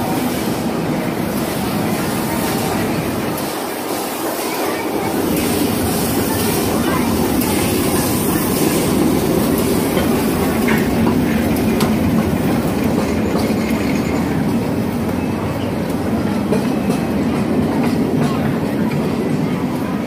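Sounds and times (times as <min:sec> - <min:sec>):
train rumble: 0:00.0 - 0:20.0
wheels clicking over rail joints: 0:04.2 - 0:19.8.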